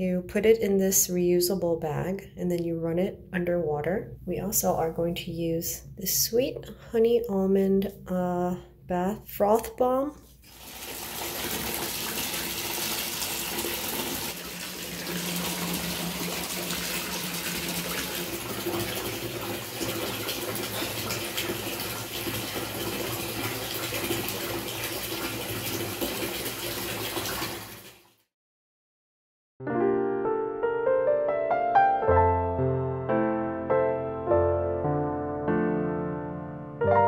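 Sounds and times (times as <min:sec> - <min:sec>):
tap pouring into bathtub: 0:10.4 - 0:28.2.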